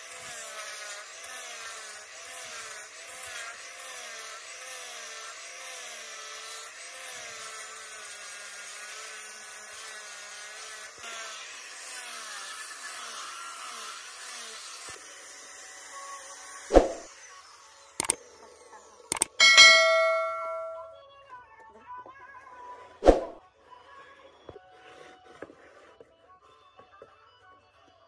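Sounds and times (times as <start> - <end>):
sharp click: 16.7 - 17.1, 19.1 - 20.9.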